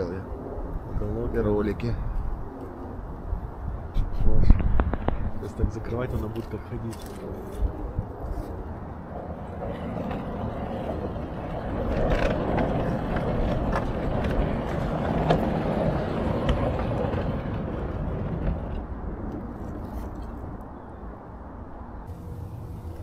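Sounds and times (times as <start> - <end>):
gate rollers rumbling on track: 9.2 - 18.9.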